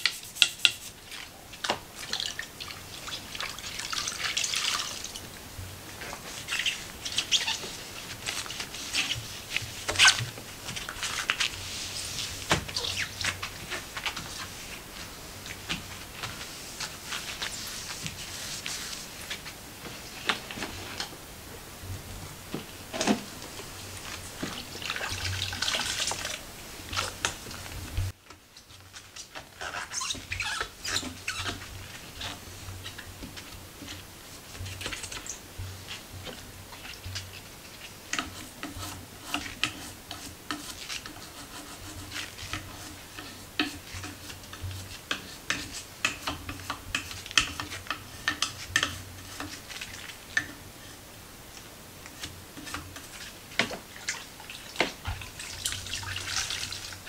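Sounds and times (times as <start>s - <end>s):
cloth and brush scrubbing wood: 0.0s - 5.1s, 5.7s - 21.0s, 29.0s - 57.0s
water splashing in bowl: 1.1s - 5.2s, 24.5s - 27.3s, 53.8s - 57.0s.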